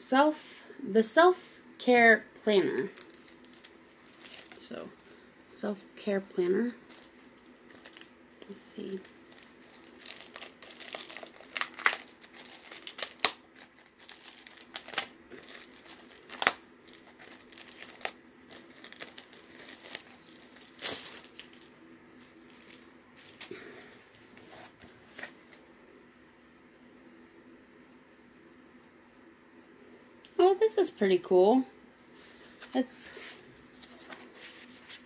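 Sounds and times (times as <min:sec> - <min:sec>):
plastic shrink-wrap crinkling: 0:02.6 - 0:05.6, 0:06.6 - 0:23.6.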